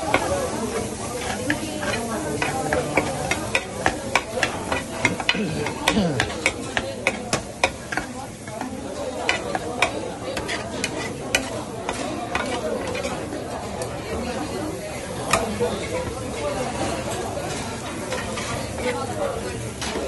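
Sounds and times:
rice sizzling on a griddle: 0.0 - 20.0
metal scoop scraping a pan: 1.1 - 5.4.

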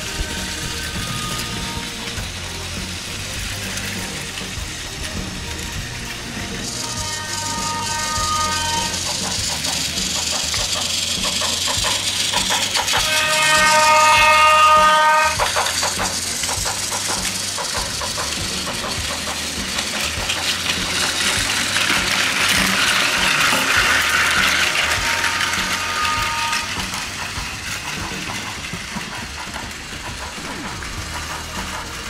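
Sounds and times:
toy train motors whirring: 0.0 - 32.0.

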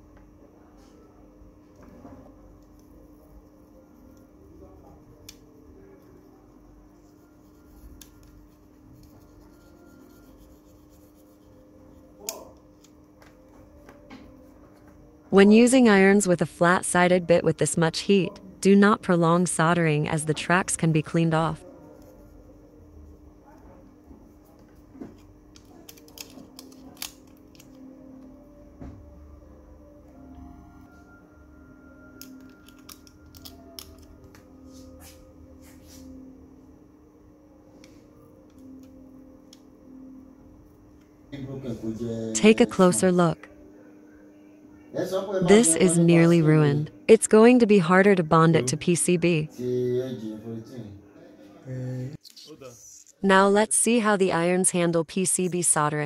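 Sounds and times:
low steady hum: 0.0 - 56.0
plastic strip clicking and crinkling: 25.5 - 27.8.

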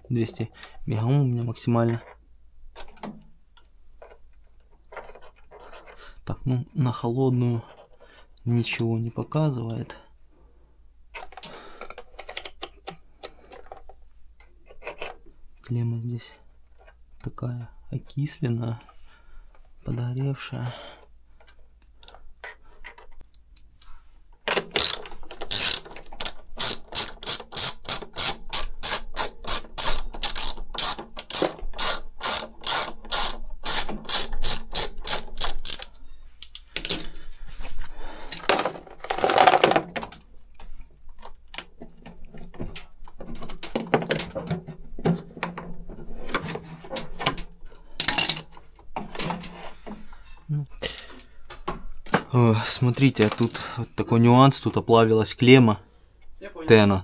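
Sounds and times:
ratcheting screwdriver clicking: 24.6 - 36.6.

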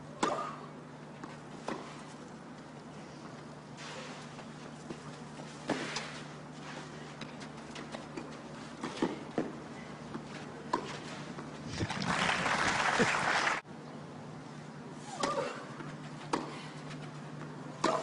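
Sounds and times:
crowd applause: 11.7 - 13.6.

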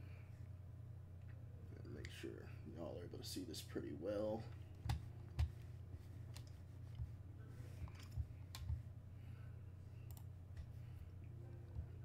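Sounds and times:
steady low hum: 0.0 - 12.0
computer mouse clicks: 7.9 - 8.8, 10.0 - 10.7.

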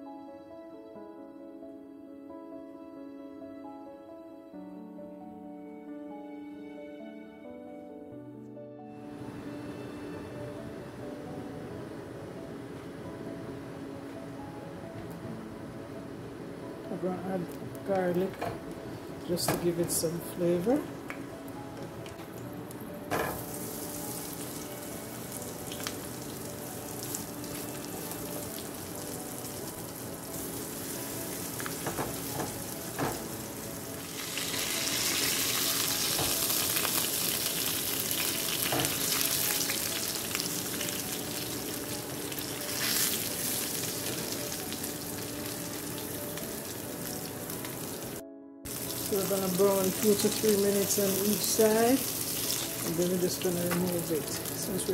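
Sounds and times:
fish frying in hot oil: 23.4 - 54.9.

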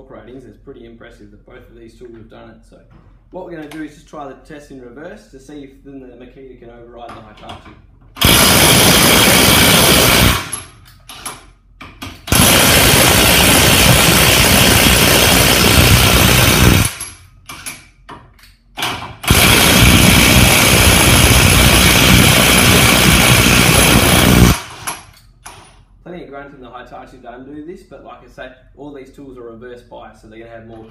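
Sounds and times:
impact wrench hammering: 8.2 - 25.7.

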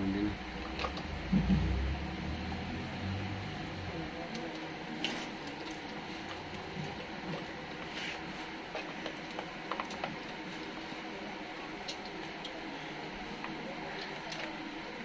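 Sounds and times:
workshop background noise: 0.0 - 15.0
faint clicks and rustles of parts: 4.2 - 15.0.

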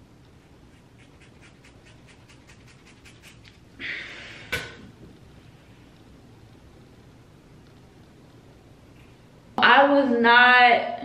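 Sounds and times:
scissors snipping through hair: 0.7 - 3.6
breathy exhale: 3.8 - 4.6.

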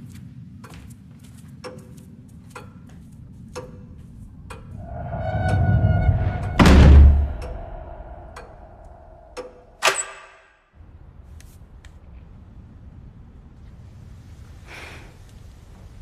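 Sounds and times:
steady low hum: 0.2 - 9.8
low hit: 4.6 - 9.8.

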